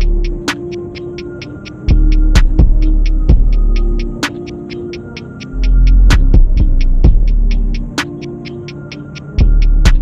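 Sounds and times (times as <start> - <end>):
deep bass: 0.0 - 0.4, 1.9 - 4.2, 5.6 - 7.9, 9.4 - 10.0
background music with steady beat: 0.0 - 10.0
hi-hat ticks: 0.0 - 10.0.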